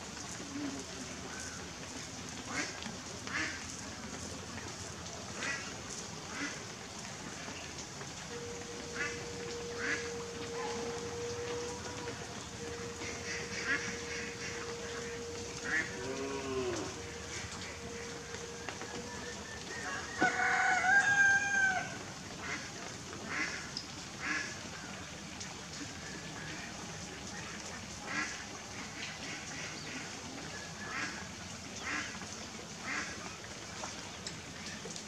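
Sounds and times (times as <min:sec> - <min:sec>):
outdoor hiss: 0:00.0 - 0:35.0
poultry calling: 0:08.3 - 0:20.6
rooster crowing: 0:08.4 - 0:13.3, 0:17.8 - 0:22.1.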